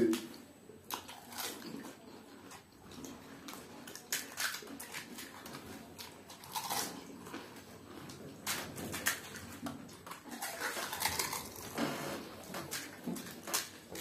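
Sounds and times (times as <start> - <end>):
crisp shells crunching: 3.9 - 7.4, 10.2 - 11.8.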